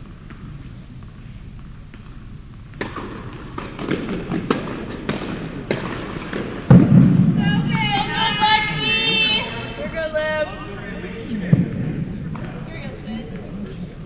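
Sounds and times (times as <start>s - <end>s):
tennis ball bouncing on hard court: 2.7s - 7.2s.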